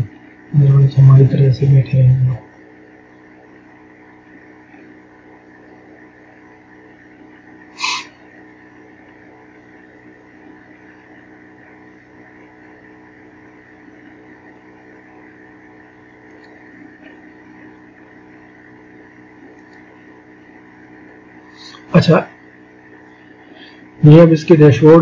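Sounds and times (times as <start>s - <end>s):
electrical hum and hiss: 0.0s - 25.0s
short loud hissing burst: 7.7s - 8.2s.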